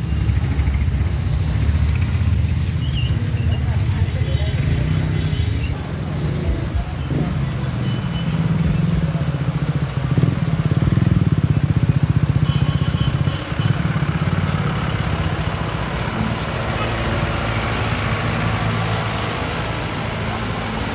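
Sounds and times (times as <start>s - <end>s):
tyres hissing on wet road: 13.4s - 20.9s.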